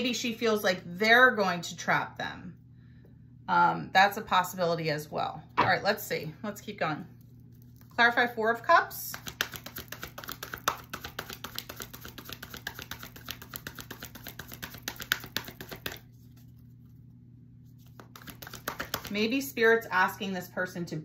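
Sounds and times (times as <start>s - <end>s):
cards being shuffled: 9.2s - 16.9s, 17.6s - 19.1s.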